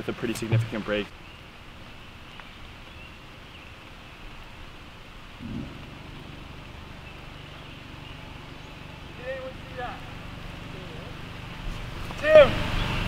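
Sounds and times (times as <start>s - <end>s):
rain falling: 0.0s - 13.0s
low rumble: 5.3s - 11.0s.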